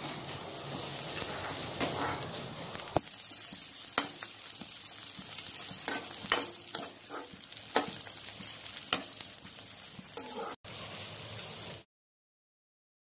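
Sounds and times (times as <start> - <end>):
metal spatula scraping pan: 0.0 - 2.9, 5.7 - 8.0, 10.2 - 10.6
onions sizzling in oil: 0.0 - 11.9.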